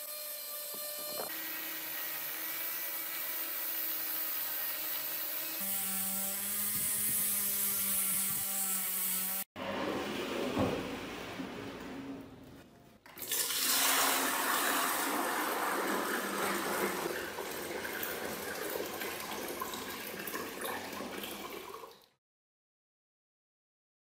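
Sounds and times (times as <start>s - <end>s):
water pouring into a glass tank: 13.2s - 22.2s.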